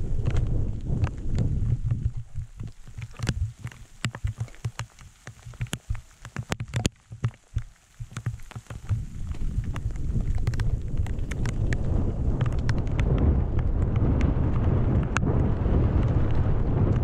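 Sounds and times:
wind rumble on microphone: 0.0s - 17.0s
footsteps on gravel: 0.1s - 11.8s.

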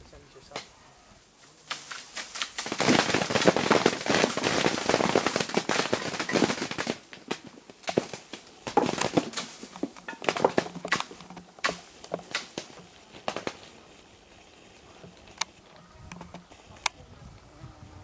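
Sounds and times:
plums striking plastic sheeting: 1.7s - 15.4s.

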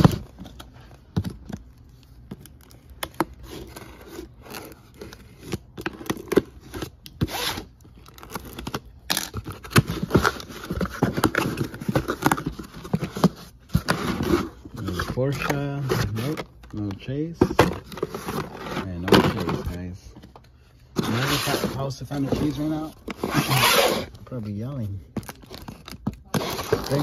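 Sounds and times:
cardboard tearing and scraping: 3.1s - 16.5s, 21.0s - 27.0s
packing tape ripping: 23.1s - 24.1s, 25.2s - 27.0s.

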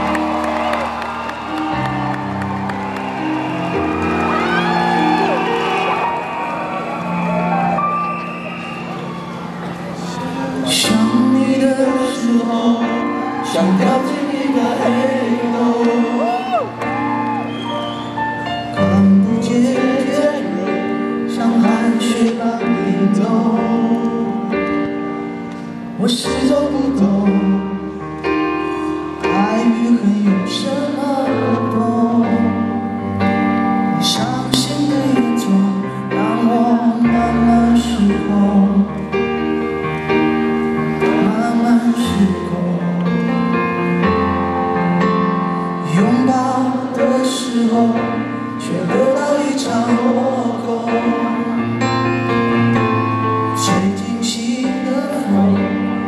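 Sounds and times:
man singing: 10.2s - 16.9s, 18.7s - 25.2s, 25.9s - 28.1s, 29.2s - 33.1s, 33.8s - 39.5s, 41.0s - 44.0s, 45.7s - 56.0s.

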